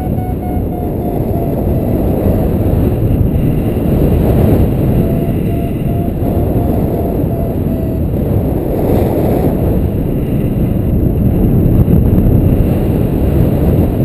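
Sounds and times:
variometer short beeps: 0.0 - 2.6, 4.0 - 8.5
wind buffeting microphone: 0.0 - 14.0.

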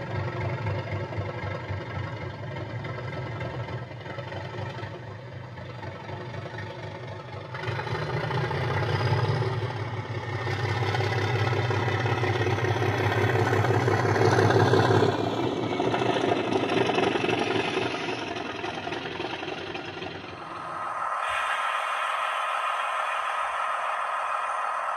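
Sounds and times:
model locomotive diesel engine sound: 0.0 - 24.9.

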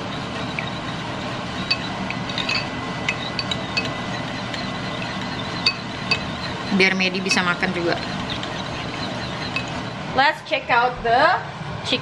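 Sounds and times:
steady background noise: 0.0 - 12.0
metal spoon clinking on ceramic bowl: 1.7 - 9.8.

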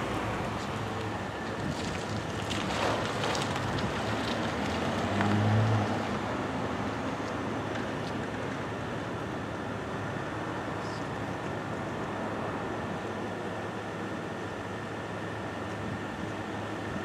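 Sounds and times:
passing vehicle engine hum: 0.0 - 8.9
traffic noise: 0.0 - 17.0
wind: 0.0 - 17.0.

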